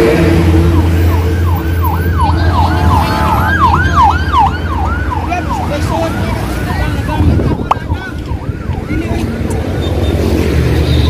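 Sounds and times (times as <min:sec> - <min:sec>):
siren yelping: 0:00.6 - 0:09.5.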